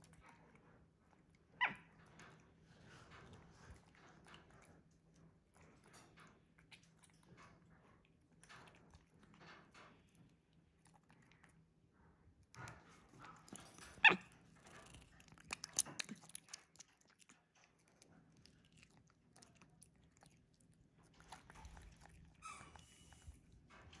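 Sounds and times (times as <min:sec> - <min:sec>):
monkey chewing fruit: 0:12.5 - 0:24.0.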